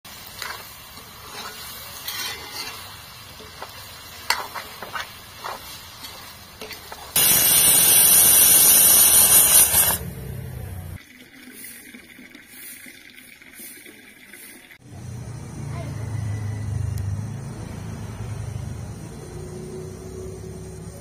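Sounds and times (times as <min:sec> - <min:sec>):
pressure cooker venting steam: 0:00.1 - 0:11.0
light sizzle: 0:00.1 - 0:15.6
metal spoon scraping a wok: 0:00.3 - 0:10.0.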